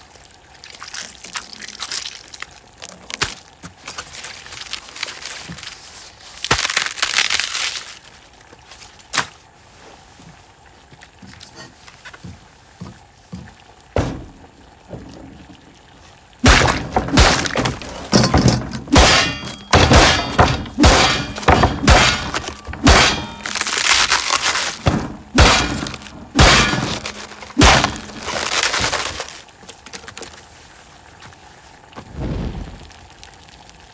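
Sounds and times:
cabbage breaking and thudding: 0:06.4 - 0:08.1, 0:16.4 - 0:29.4.

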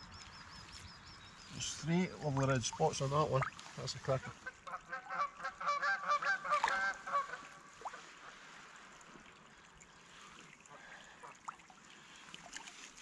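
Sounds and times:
geese honking: 0:04.2 - 0:07.6.

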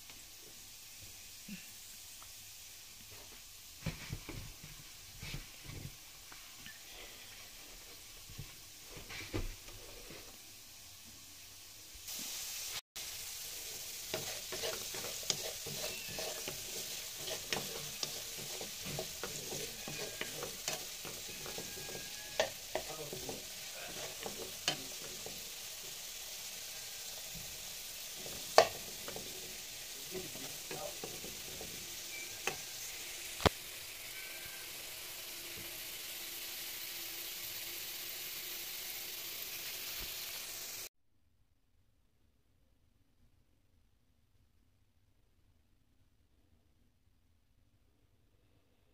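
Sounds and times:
potatoes sizzling in oil: 0:00.0 - 0:40.9
wooden spoon knocking pan: 0:14.2 - 0:25.4, 0:28.2 - 0:32.6.

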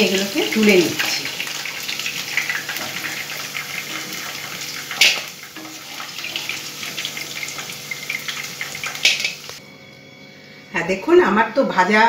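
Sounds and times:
chicken sizzling in hot oil: 0:00.0 - 0:09.6.

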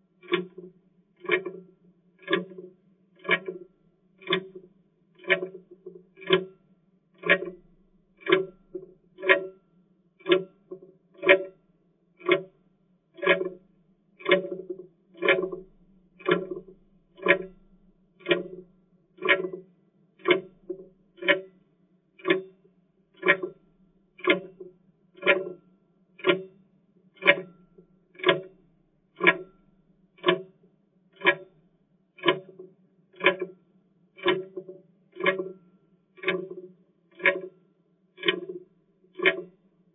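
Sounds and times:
clock ticking: 0:00.2 - 0:00.6, 0:01.2 - 0:01.6, 0:02.2 - 0:03.6, 0:04.2 - 0:04.6, 0:05.2 - 0:05.6, 0:06.2 - 0:06.6, 0:07.2 - 0:09.5, 0:12.2 - 0:12.5, 0:13.2 - 0:13.6, 0:14.2 - 0:18.6, 0:19.2 - 0:19.6, 0:20.2 - 0:21.5, 0:22.2 - 0:22.5, 0:23.2 - 0:23.6, 0:24.2 - 0:25.6, 0:26.2 - 0:26.5, 0:27.2 - 0:28.6, 0:29.2 - 0:29.6, 0:30.2 - 0:30.5, 0:31.2 - 0:31.6, 0:32.2 - 0:32.6, 0:33.2 - 0:33.6, 0:34.2 - 0:37.5, 0:38.2 - 0:38.6, 0:39.2 - 0:39.5.

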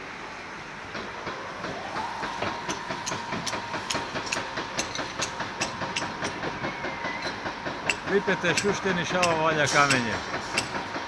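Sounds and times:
machinery running: 0:01.6 - 0:11.0
sharp mechanical clicks: 0:02.7 - 0:11.0.

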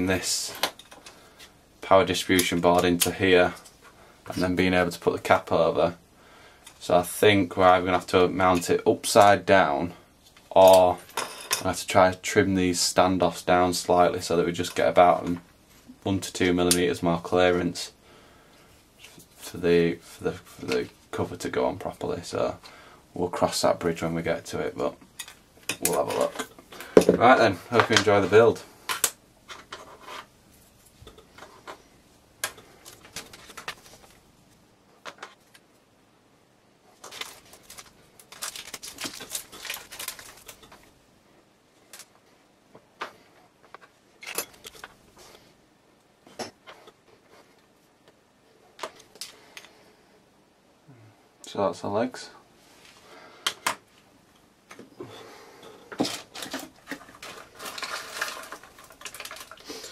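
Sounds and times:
rustling: 0:36.8 - 0:41.0, 0:55.8 - 0:59.9
small parts clicking and knocking: 0:55.9 - 0:59.9.

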